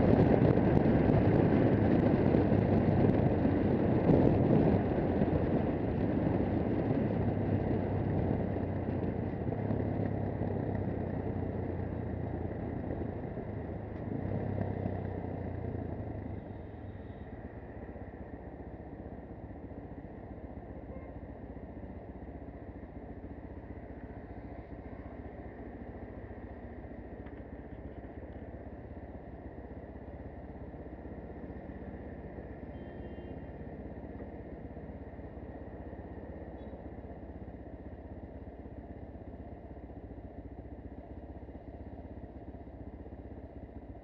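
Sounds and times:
motorcycle engine idling: 9.3 - 44.0.

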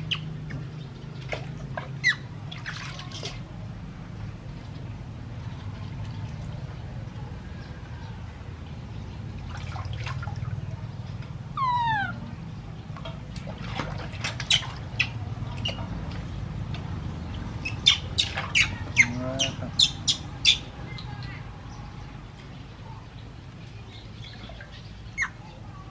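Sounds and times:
water splashing in a basin: 0.0 - 7.2, 8.6 - 20.0
baby monkey squealing: 11.6 - 12.3.

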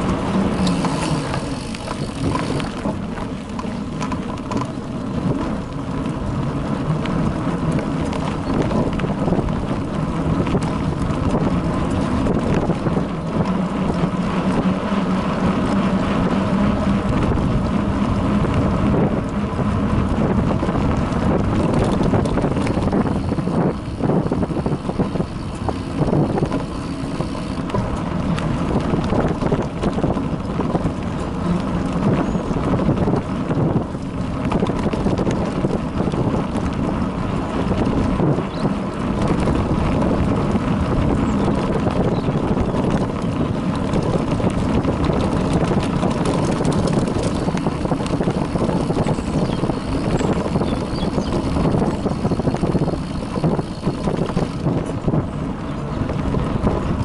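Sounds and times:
bicycle tyres and frame rattling: 0.0 - 57.0
wind buffeting microphone: 0.0 - 57.0.

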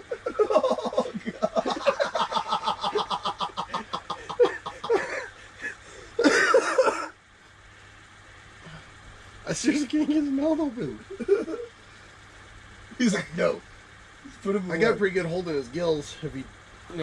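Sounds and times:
men laughing hard: 0.0 - 7.1, 11.1 - 11.7.

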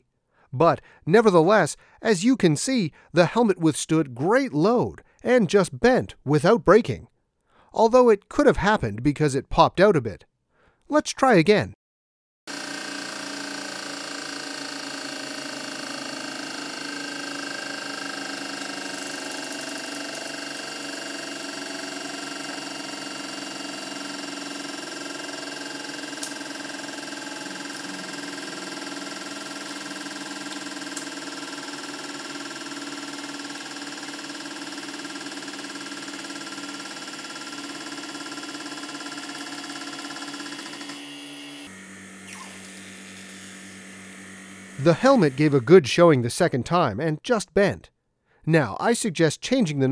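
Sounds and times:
hydraulic pump motor running: 12.5 - 45.8.

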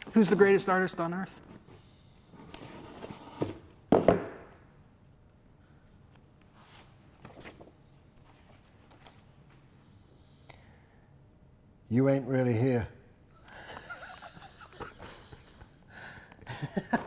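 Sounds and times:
paper rustling: 6.1 - 9.5.

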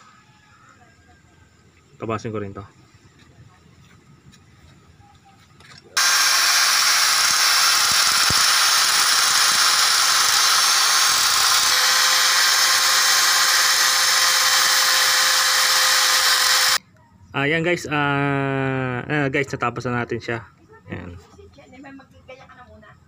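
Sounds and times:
angle grinder grinding metal: 6.0 - 16.8.

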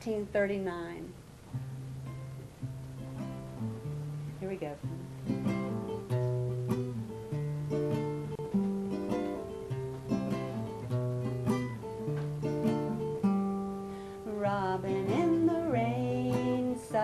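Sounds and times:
acoustic guitar strumming chords: 0.0 - 17.0.

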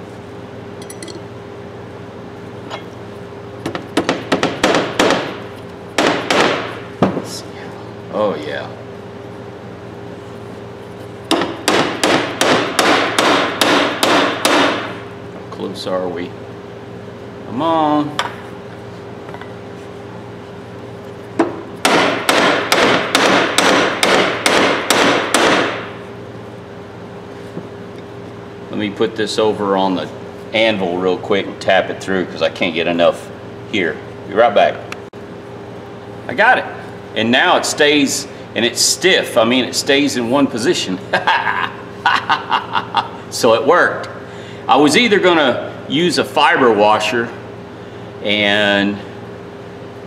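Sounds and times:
light metal clinks: 0.8 - 1.2.

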